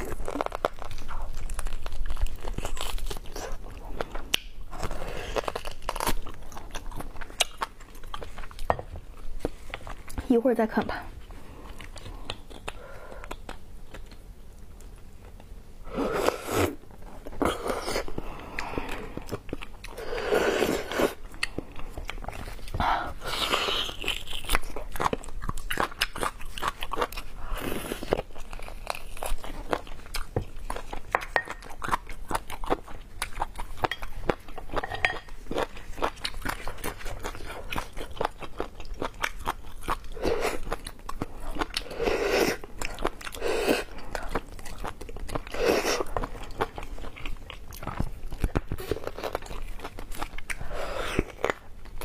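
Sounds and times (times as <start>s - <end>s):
person chewing: 0.0s - 10.2s, 11.2s - 52.0s.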